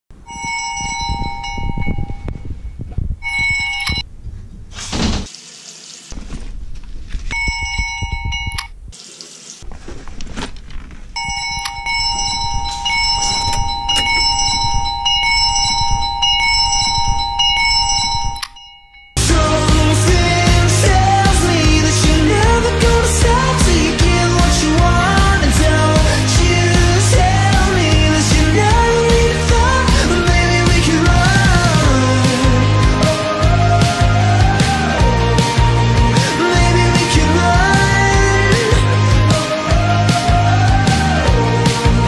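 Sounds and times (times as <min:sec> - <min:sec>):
phone alarm ringing: 0:00.3 - 0:02.4, 0:03.2 - 0:04.0, 0:07.3 - 0:08.7, 0:11.2 - 0:19.2.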